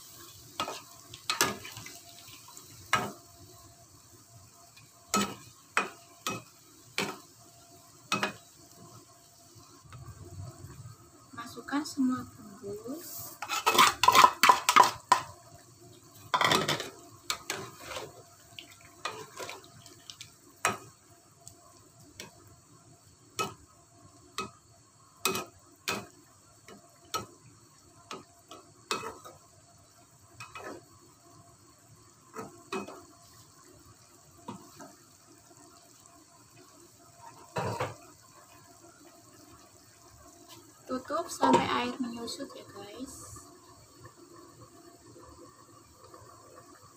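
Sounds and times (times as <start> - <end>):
metal spoon scraping a pan: 13.2 - 15.2, 16.3 - 18.2, 19.0 - 19.6.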